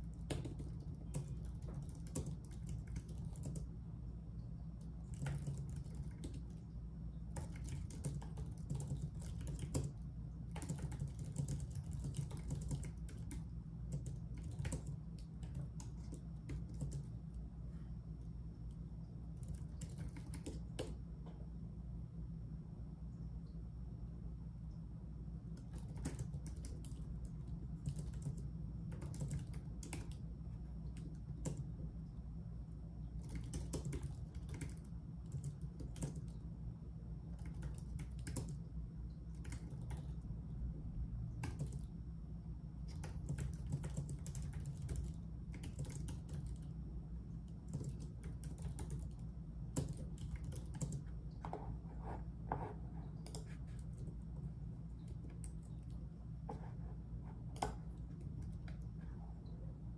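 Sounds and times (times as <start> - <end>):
keyboard typing clicks: 0.0 - 3.7, 4.8 - 6.6, 7.3 - 17.2, 19.3 - 21.0, 25.5 - 31.7, 33.2 - 36.4, 37.4 - 38.6, 39.3 - 40.2, 41.4 - 41.9, 42.9 - 46.7, 47.5 - 51.6, 53.1 - 54.2
steady low hum: 0.0 - 59.9.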